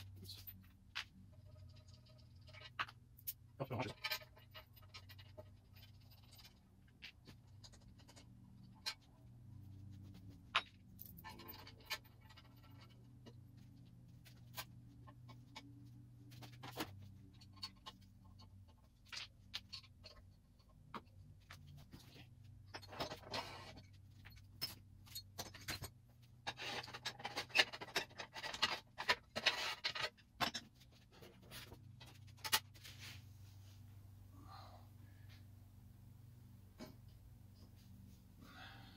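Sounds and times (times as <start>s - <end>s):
metal parts rattling and clattering: 0.0s - 33.0s
clicks and knocks of metal tools: 10.4s - 32.8s.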